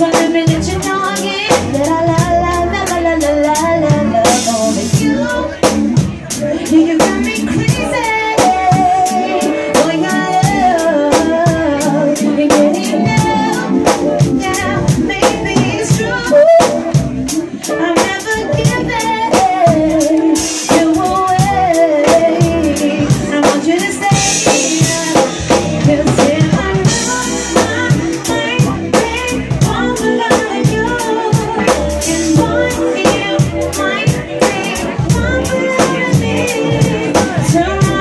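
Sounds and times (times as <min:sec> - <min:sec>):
band playing soul groove: 0:00.0 - 0:38.0
drums and hand percussion: 0:00.0 - 0:38.0.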